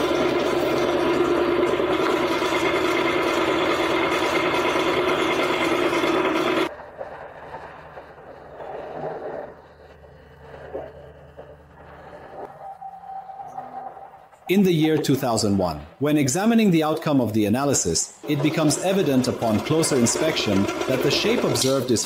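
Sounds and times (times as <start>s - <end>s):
drill press whine with rattle: 0.0s - 8.4s, 18.2s - 22.0s.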